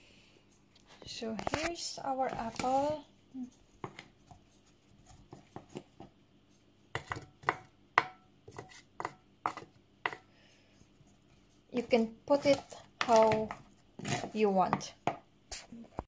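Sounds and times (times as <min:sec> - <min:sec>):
wooden spoon knocking against dishes: 0:06.9 - 0:08.2.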